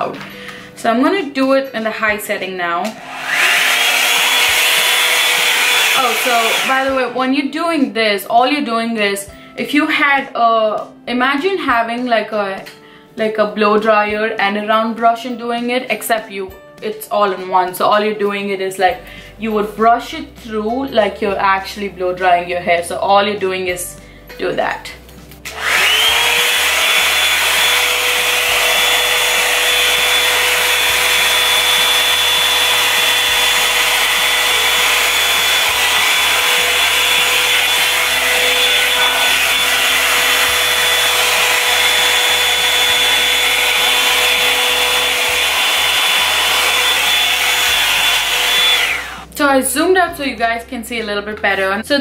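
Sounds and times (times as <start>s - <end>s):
hot-air brush blowing with motor whine: 2.9s - 7.2s, 25.4s - 49.3s.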